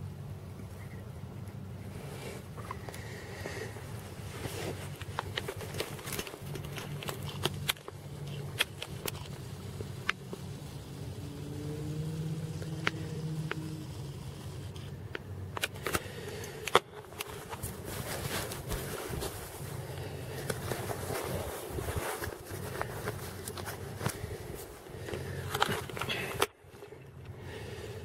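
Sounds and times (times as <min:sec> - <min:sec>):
low background hum: 0:00.0 - 0:28.0
camera handling clicks and rubbing: 0:04.4 - 0:10.4, 0:14.7 - 0:24.4, 0:25.0 - 0:27.0.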